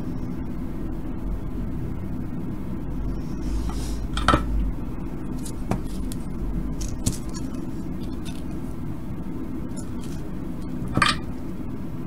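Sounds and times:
steady low hum: 0.0 - 12.0
small hard parts clicking: 5.3 - 8.8.

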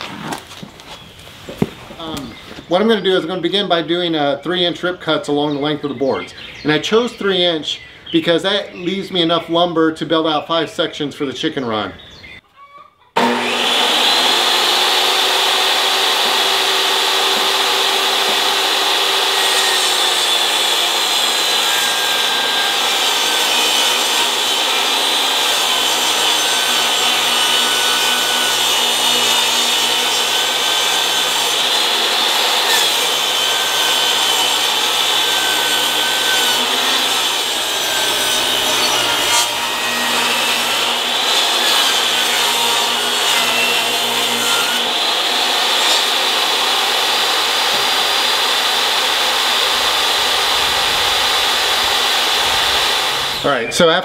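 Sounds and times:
saw blade cutting wood: 13.2 - 53.5
table saw motor whine: 13.2 - 53.5.

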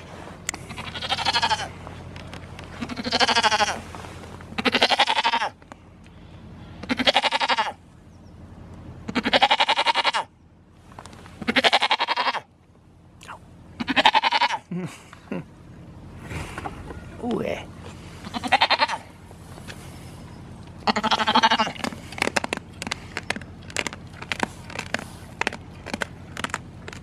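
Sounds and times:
goat bleating: 0.6 - 1.8, 2.7 - 3.9, 4.6 - 5.6, 6.8 - 7.8, 9.1 - 10.3, 11.4 - 12.5, 13.8 - 14.7, 18.2 - 19.2, 20.8 - 22.0.

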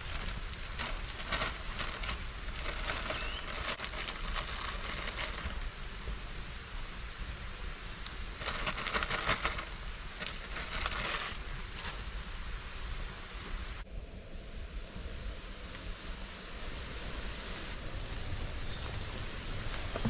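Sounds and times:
plastic bag crinkling: 0.0 - 5.7, 8.4 - 12.0
rain hiss: 0.0 - 20.0.

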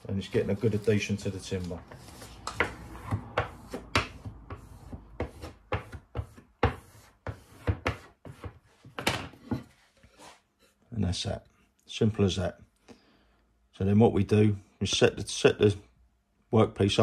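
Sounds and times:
plastic squeegee scraping vinyl: 0.0 - 7.6.

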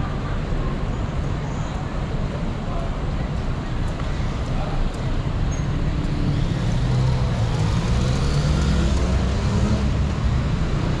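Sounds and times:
vehicle engines humming: 0.0 - 11.0
vehicle pulling away: 6.2 - 11.0.

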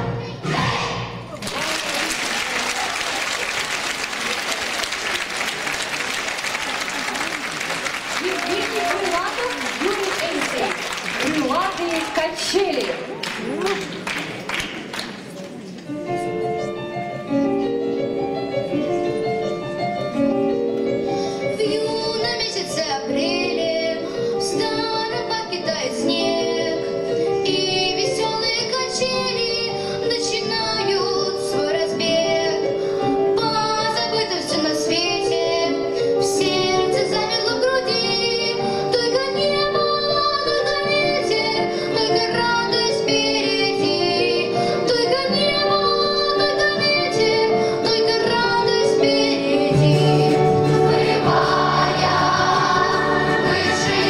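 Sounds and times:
children's choir singing: 0.0 - 1.4, 33.4 - 54.0.

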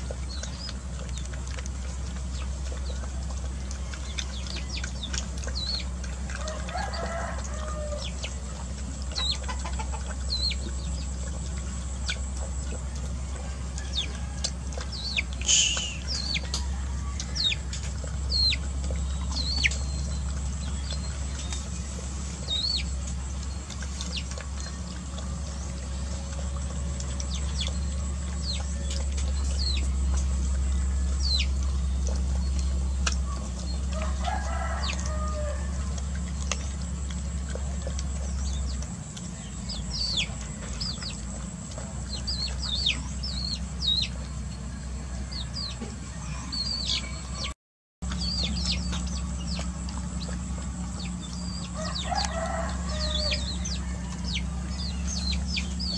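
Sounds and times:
young chickens peeping: 0.0 - 55.9
lower chicken call: 6.4 - 8.2, 13.2 - 17.8, 33.9 - 36.0, 51.6 - 55.9.

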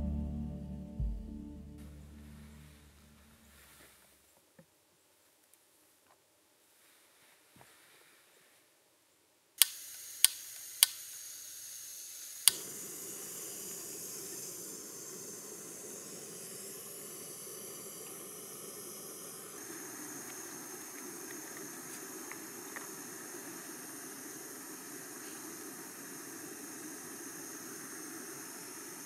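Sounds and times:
gas burner hissing: 9.6 - 29.0
stove igniter clicks: 12.5 - 18.2.

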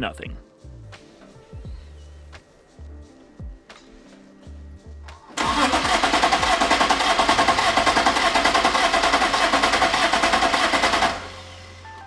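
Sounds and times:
car engine cranking: 5.3 - 12.0.

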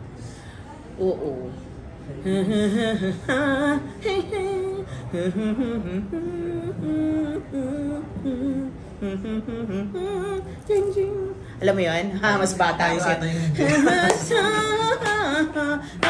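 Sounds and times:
woman singing unaccompanied: 2.2 - 16.0.

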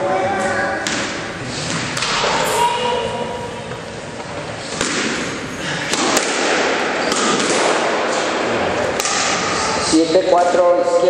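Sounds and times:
squash ball hitting court walls: 0.7 - 10.7
squash ball cracking off racquet: 4.7 - 9.5.

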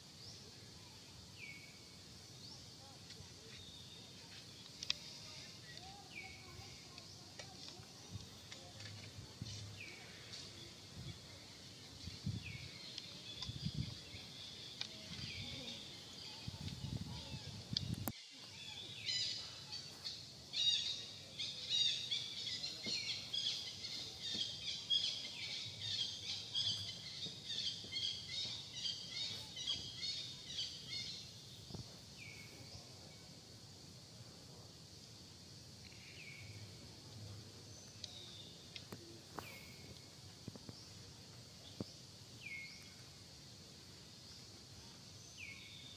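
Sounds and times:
birds chirping: 0.1 - 33.4.

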